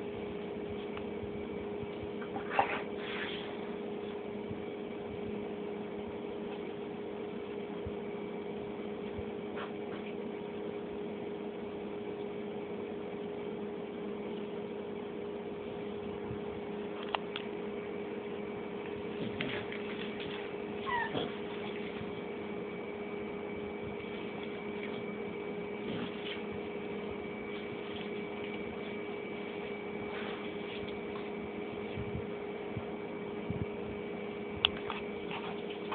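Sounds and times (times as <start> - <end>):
steady hum: 0.0 - 35.9
cat meowing: 20.8 - 21.3.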